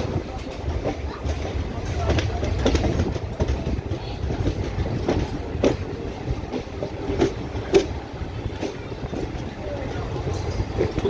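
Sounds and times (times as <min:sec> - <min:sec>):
train low rumble: 0:00.0 - 0:11.0
train wheels clacking: 0:00.0 - 0:11.0.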